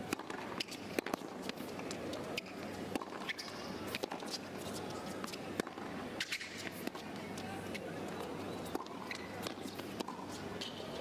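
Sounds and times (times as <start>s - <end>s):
rackets striking tennis ball: 0.1s - 4.4s.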